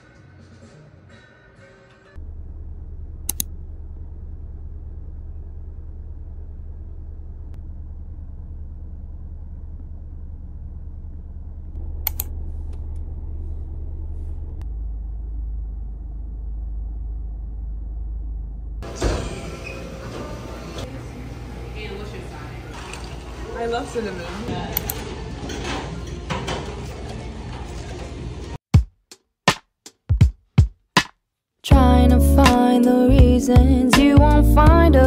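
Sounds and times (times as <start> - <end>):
steady low rumble: 2.2 - 18.9, 33.1 - 35.0
sharp clicks: 3.3 - 3.5, 12.0 - 12.3.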